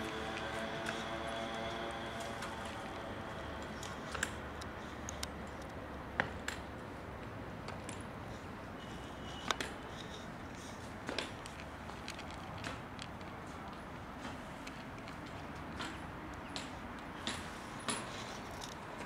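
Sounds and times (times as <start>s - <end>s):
low outdoor hum: 0.0s - 19.0s.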